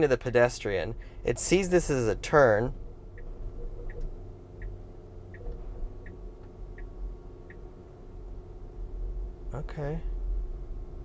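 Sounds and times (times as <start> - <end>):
low cabin hum: 0.0 - 11.0
turn signal ticking: 1.3 - 8.4.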